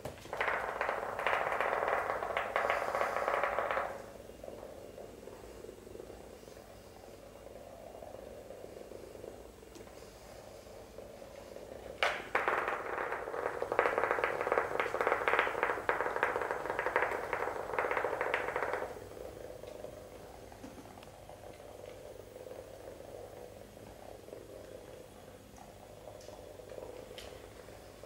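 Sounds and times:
toy bug rattling on wooden floor: 0:00.1 - 0:04.6, 0:11.0 - 0:20.0.

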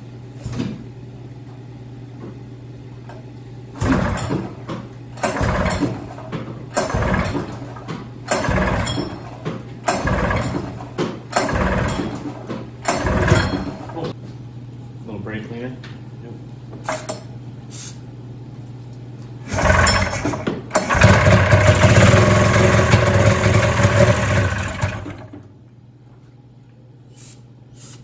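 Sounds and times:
snowmobile engine pull-start: 0:19.5 - 0:25.4.

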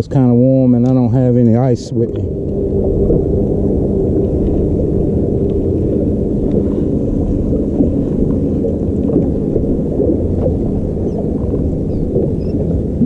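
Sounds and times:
steady low hum: 0:00.0 - 0:13.0
wind rumbling on microphone: 0:00.0 - 0:13.0.

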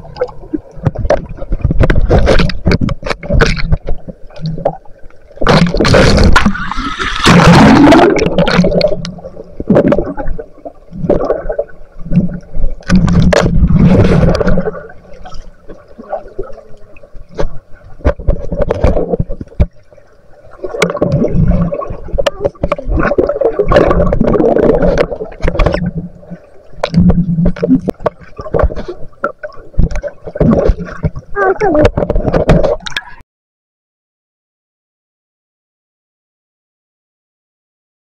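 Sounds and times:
water gurgling and sloshing: 0:00.0 - 0:33.2.

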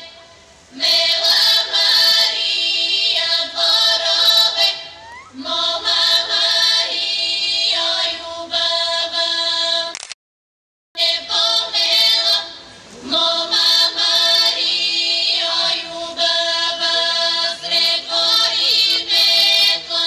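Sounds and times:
women's choir singing folk song: 0:00.0 - 0:09.9, 0:11.0 - 0:20.0.

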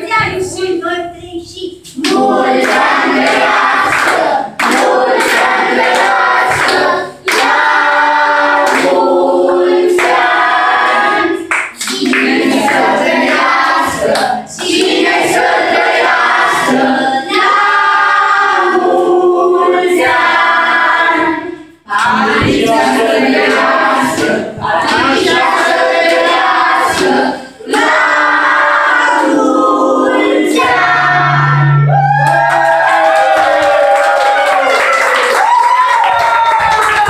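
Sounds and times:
women and children singing: 0:00.0 - 0:32.0
people clapping: 0:01.9 - 0:16.9, 0:21.9 - 0:29.5, 0:32.0 - 0:37.0.

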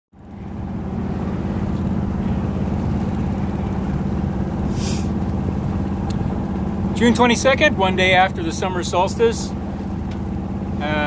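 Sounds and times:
boat engine humming: 0:00.1 - 0:11.0
brief hiss: 0:04.7 - 0:05.2.

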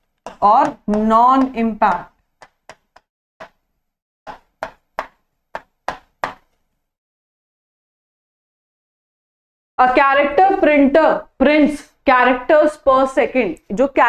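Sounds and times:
pen tapping on screen: 0:00.0 - 0:03.6, 0:04.3 - 0:06.6.

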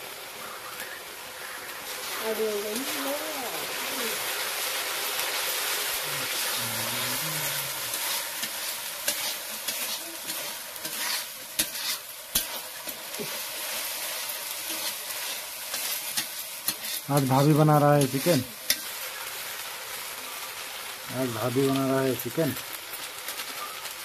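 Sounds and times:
masala sizzling in a pan: 0:00.0 - 0:24.0
metal ladle scraping a pan: 0:07.1 - 0:13.4, 0:14.5 - 0:19.2.

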